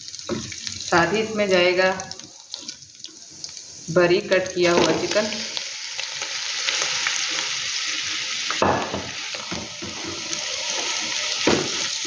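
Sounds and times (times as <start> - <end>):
chicken sizzling in oil: 0.0 - 12.0
spatula scraping pan: 9.3 - 12.0.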